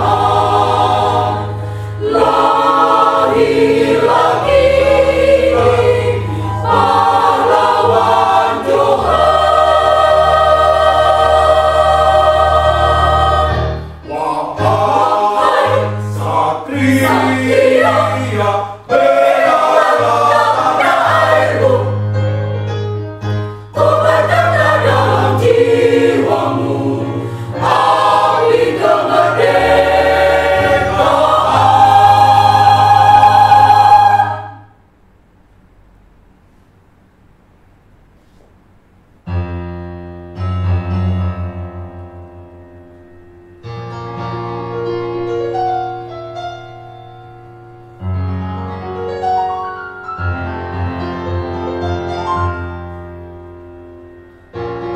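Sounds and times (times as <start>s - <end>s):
mixed choir singing in harmony: 0.0s - 22.4s, 23.7s - 34.8s.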